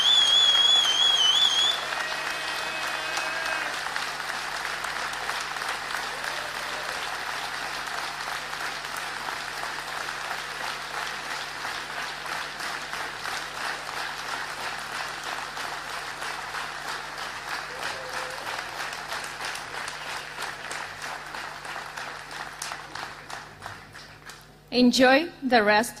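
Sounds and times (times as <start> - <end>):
audience applauding: 0.0 - 24.6.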